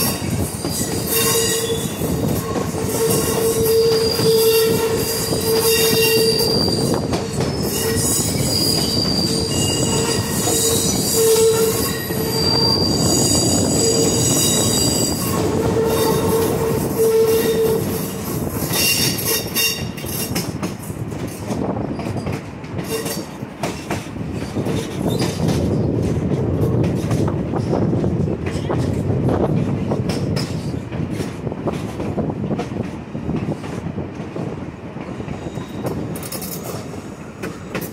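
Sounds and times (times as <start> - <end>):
train wheels squealing: 0.0 - 20.5, 21.8 - 25.9, 35.2 - 37.9
rumble of moving train cars: 0.0 - 37.9.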